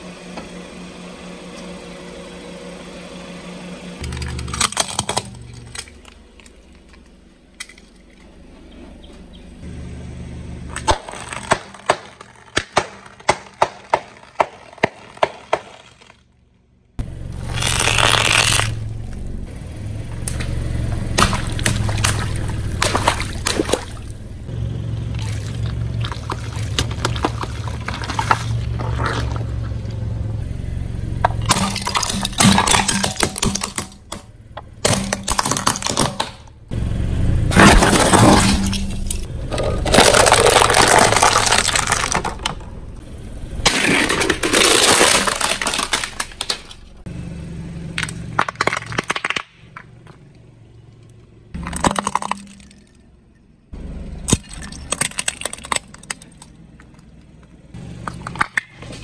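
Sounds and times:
low engine hum: 0.0 - 12.4, 16.2 - 59.0
tyre crushing objects on concrete: 10.8 - 16.3, 37.5 - 42.7, 48.0 - 50.2
hard plastic cracking: 37.6 - 42.7, 43.7 - 46.9, 48.0 - 50.2.

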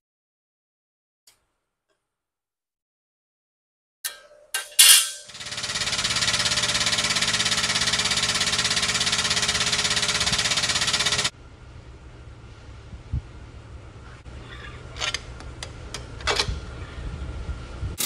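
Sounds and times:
air pump pulsing and hissing: 5.5 - 11.3.

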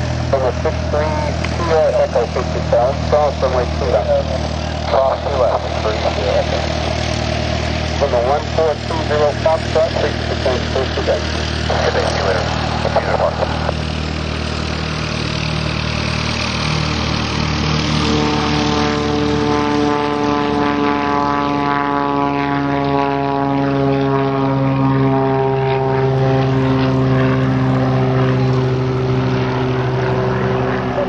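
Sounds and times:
propeller airplane engine drone: 0.0 - 31.0.

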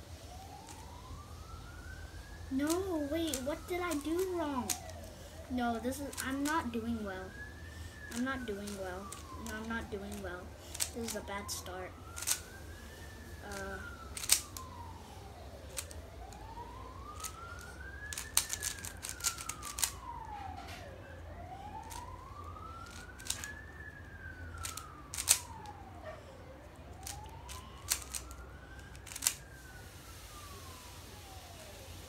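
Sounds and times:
siren wailing: 0.0 - 32.0
puzzle cube clicking: 12.2 - 12.4, 14.2 - 14.6, 15.7 - 16.0, 18.1 - 19.9, 22.8 - 23.5, 24.6 - 25.5, 27.0 - 28.2, 29.0 - 29.4.

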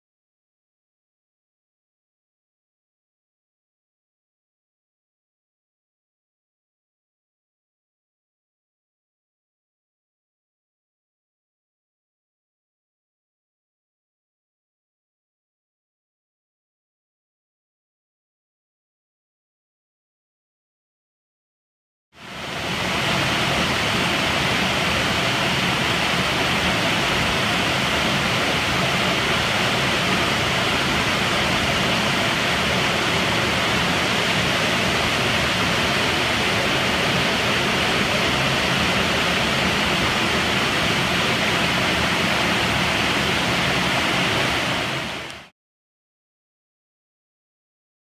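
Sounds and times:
waterfall pouring into pool: 22.2 - 45.5.

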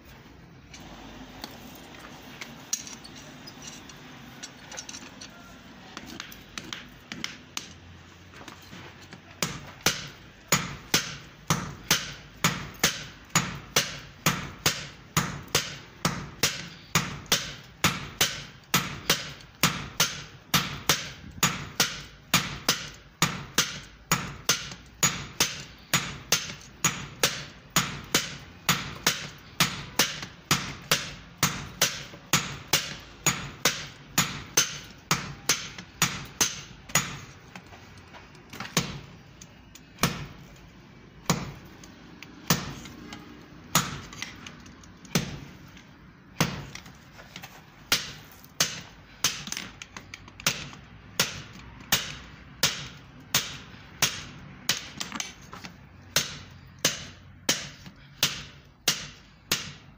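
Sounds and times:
hammer striking hot steel on anvil: 9.4 - 37.3, 41.2 - 41.7, 42.4 - 44.2, 45.0 - 45.5, 46.4 - 46.8, 47.9 - 49.7, 50.4 - 55.0, 56.1 - 59.9.

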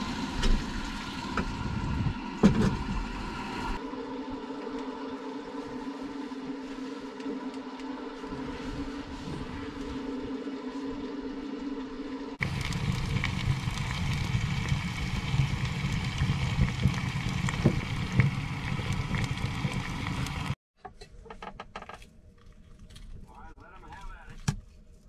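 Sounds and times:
steady hum: 0.0 - 20.6
wood fire crackling: 12.4 - 20.6.

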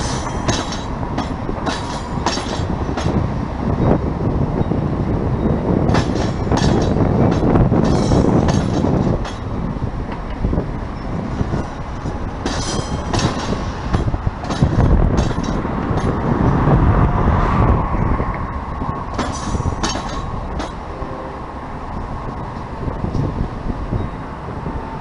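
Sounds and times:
train wheels clicking over rail joints: 0.0 - 16.6, 18.3 - 21.0
train rumbling past: 0.0 - 25.0.

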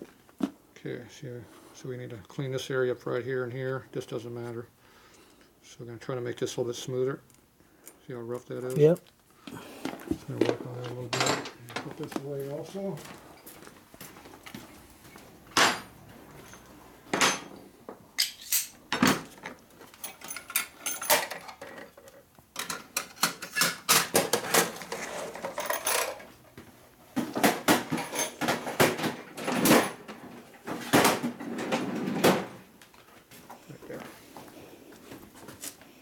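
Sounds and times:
metal tools clinking and clattering: 10.8 - 11.9, 15.6 - 17.6, 18.2 - 22.0, 22.6 - 26.3, 27.7 - 30.2.

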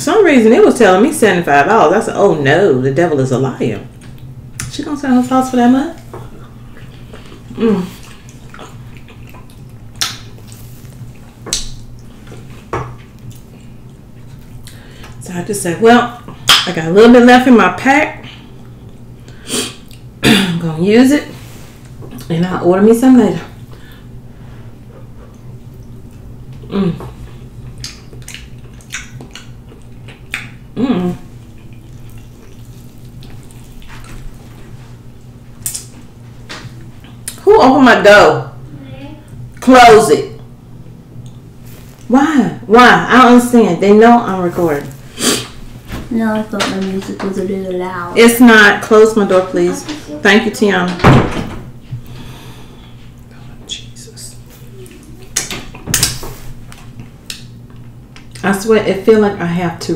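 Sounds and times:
low steady hum: 0.0 - 59.9
wet mouth smacks: 8.3 - 10.6, 11.5 - 11.8, 27.8 - 30.6, 35.6 - 35.9
person humming: 26.6 - 27.2, 30.8 - 31.2, 54.5 - 55.3.

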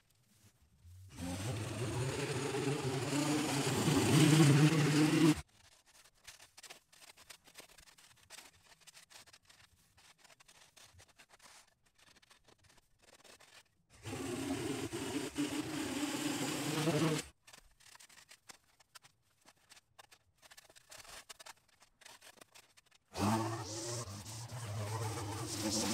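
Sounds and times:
faint rustling and crackling: 0.0 - 1.2, 5.4 - 14.0, 17.2 - 23.2
string trimmer cutting grass: 1.1 - 5.4, 14.0 - 17.3, 23.1 - 25.9.

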